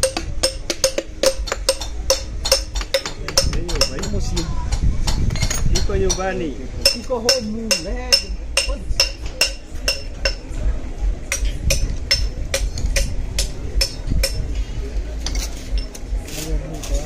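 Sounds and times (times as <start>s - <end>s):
metal-on-metal tapping: 0.0s - 10.5s, 11.3s - 14.6s.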